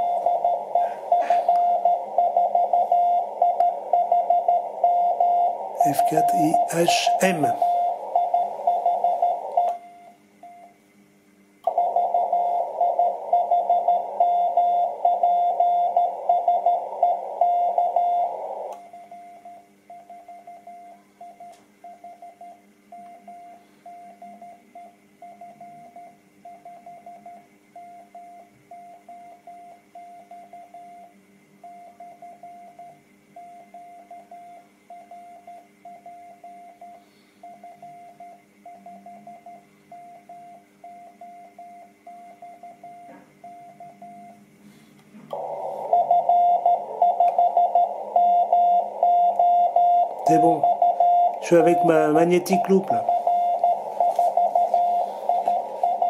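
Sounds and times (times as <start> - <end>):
morse code tone: 0.0 - 10.0, 45.3 - 56.0
radio receiver hiss: 5.5 - 9.6, 45.3 - 49.0, 51.3 - 56.0.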